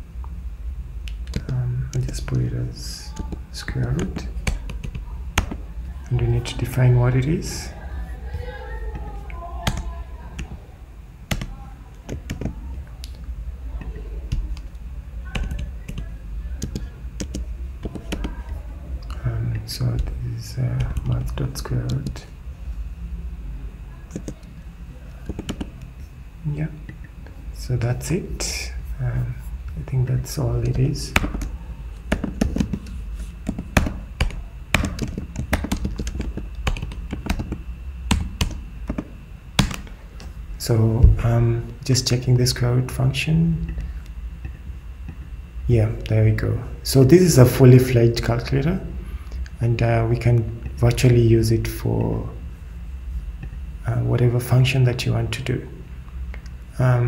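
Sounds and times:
low steady hum: 0:00.0 - 0:57.0
keyboard typing: 0:01.1 - 0:02.4, 0:03.0 - 0:05.7, 0:08.9 - 0:10.6, 0:11.3 - 0:13.2, 0:13.8 - 0:19.2, 0:20.8 - 0:22.2, 0:24.1 - 0:24.5, 0:25.1 - 0:25.9, 0:30.6 - 0:40.0.

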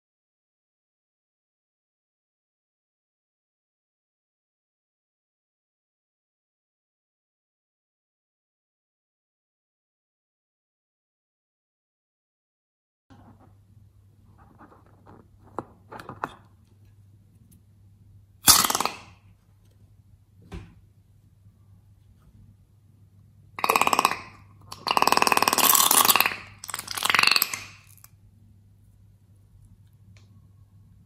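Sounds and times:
balloon sputtering liquid and air: 0:24.8 - 0:28.0.

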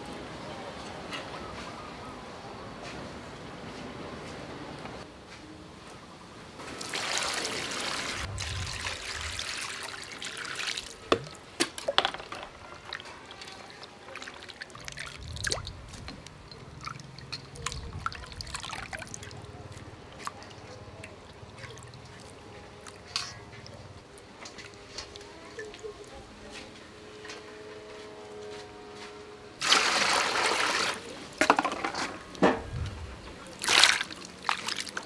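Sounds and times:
water pouring into steel bowl: 0:06.8 - 0:11.1, 0:16.5 - 0:19.4
water dripping: 0:08.2 - 0:12.0, 0:12.9 - 0:23.8
hands splashing in water: 0:33.5 - 0:35.0.

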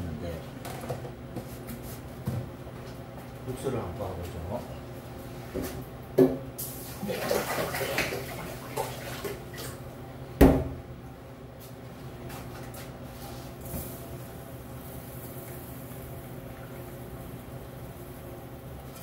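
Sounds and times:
steady low hum: 0:00.0 - 0:07.0, 0:08.3 - 0:19.0
water splashing: 0:07.0 - 0:09.8.

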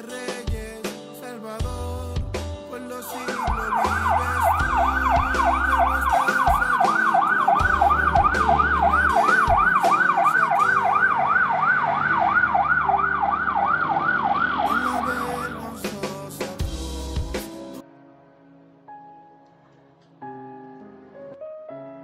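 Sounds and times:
ambulance siren yelping: 0:03.1 - 0:15.8.

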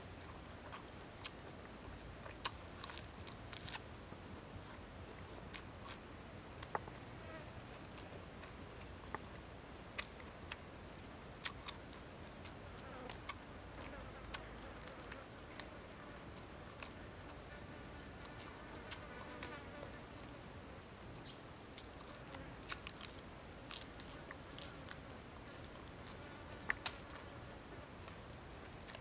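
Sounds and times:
crisp bites into lettuce: 0:02.3 - 0:03.8, 0:22.7 - 0:27.2
chewing clicks: 0:09.9 - 0:15.7, 0:21.7 - 0:27.2.

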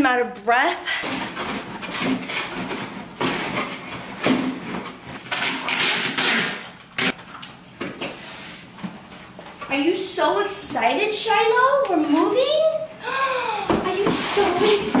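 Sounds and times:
packing tape ripping: 0:01.0 - 0:07.6
cardboard flaps rustling and knocking: 0:01.1 - 0:05.2
tape gun click: 0:05.3 - 0:07.2.

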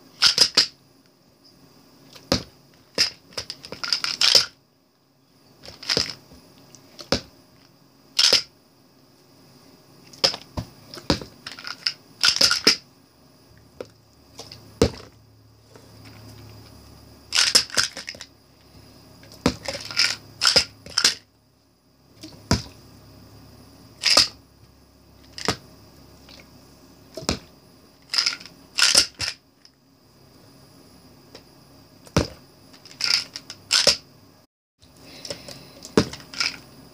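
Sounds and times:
plastic pill bottles clattering: 0:00.2 - 0:00.7, 0:02.2 - 0:04.6, 0:05.6 - 0:06.2, 0:08.2 - 0:08.5, 0:10.1 - 0:12.8, 0:17.3 - 0:18.3, 0:19.4 - 0:21.2, 0:24.0 - 0:24.4, 0:28.0 - 0:29.4, 0:32.2 - 0:34.0, 0:36.0 - 0:36.6.

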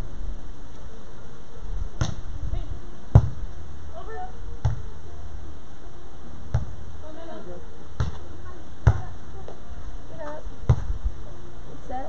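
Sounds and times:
volleyball being hit: 0:02.0 - 0:02.3, 0:03.1 - 0:03.4, 0:04.6 - 0:04.9, 0:06.5 - 0:06.8, 0:08.0 - 0:08.2, 0:08.8 - 0:09.2, 0:10.7 - 0:11.0.

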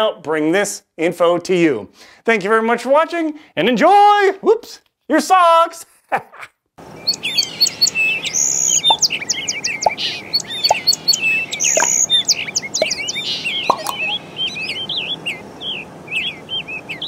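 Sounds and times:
small birds chirping: 0:06.8 - 0:17.0.

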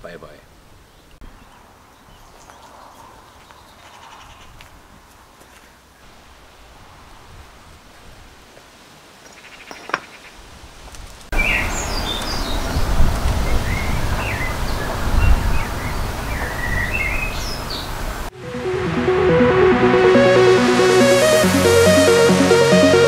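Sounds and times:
wind buffeting microphone: 0:12.5 - 0:17.0.

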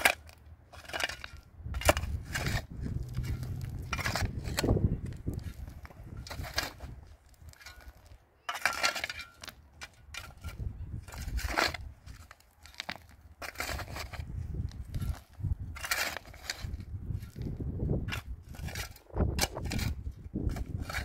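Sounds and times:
digging into stony earth: 0:00.0 - 0:21.0.

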